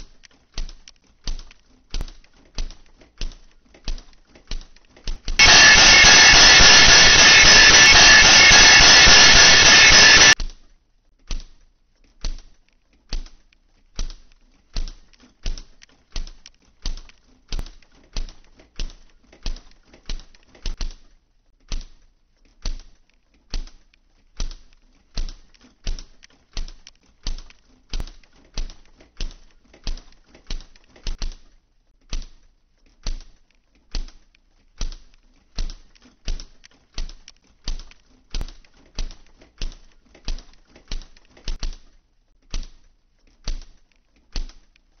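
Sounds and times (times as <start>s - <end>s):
sharp mechanical clicks: 0.0s - 10.6s, 11.2s - 45.0s.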